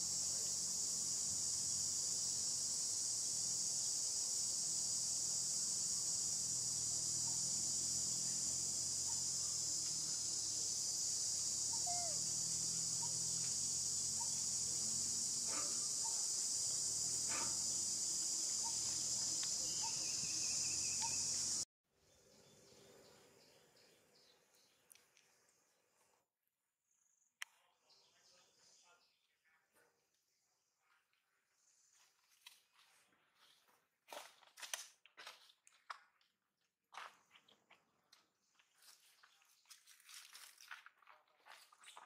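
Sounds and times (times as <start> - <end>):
high-pitched insect chorus: 0.0 - 21.6.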